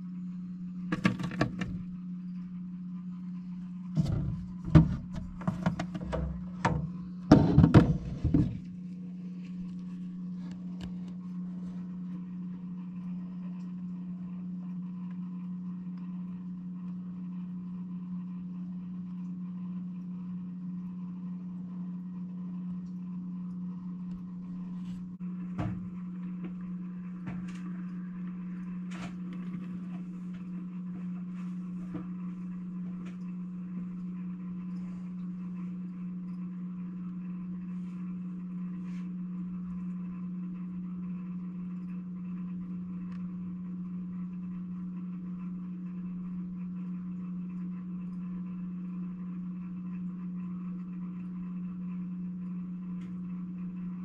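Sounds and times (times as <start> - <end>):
low electrical hum: 0.0 - 54.0
soft knock: 4.0 - 8.7.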